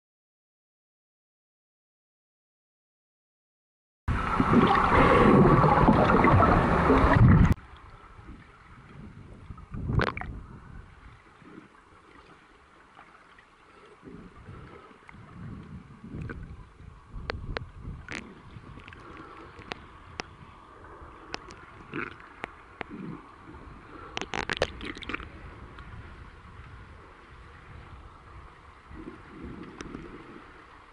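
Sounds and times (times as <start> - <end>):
underwater churning water: 4.1 - 30.9
bubbles clicking and crackling: 4.4 - 7.6, 9.8 - 10.3, 17.2 - 20.3, 21.3 - 23.2, 24.1 - 25.3, 29.0 - 30.2.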